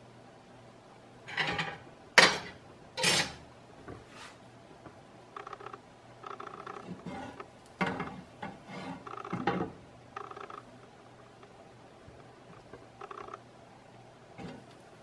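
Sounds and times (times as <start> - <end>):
plastic spatula scraping pan: 8.4 - 9.4.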